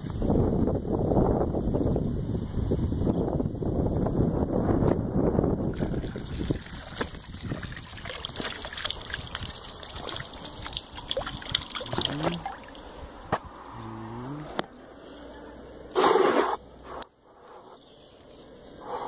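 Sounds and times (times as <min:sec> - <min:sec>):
water dripping from net: 0:05.8 - 0:12.8.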